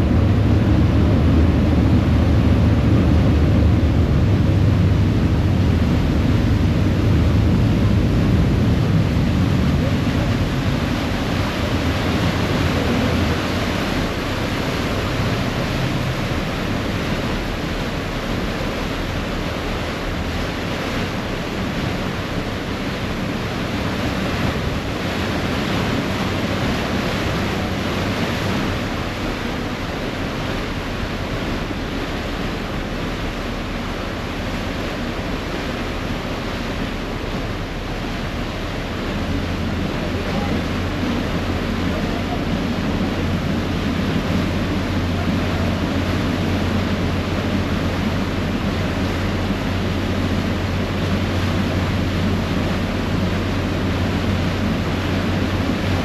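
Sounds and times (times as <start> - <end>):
wind buffeting microphone: 0.0 - 31.9
low engine hum: 0.0 - 56.0
propeller wake churning: 0.0 - 56.0.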